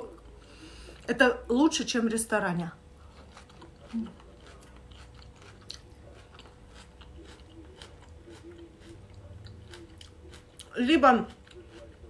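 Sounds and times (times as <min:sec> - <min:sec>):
person chewing salad: 0:03.0 - 0:12.0.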